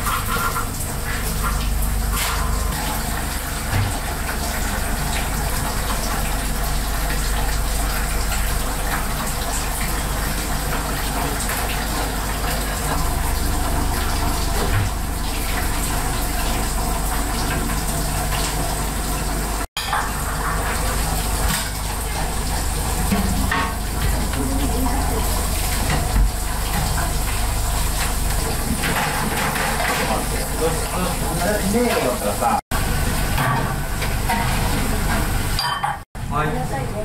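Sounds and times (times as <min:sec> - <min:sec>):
water running: 0:00.0 - 0:37.0.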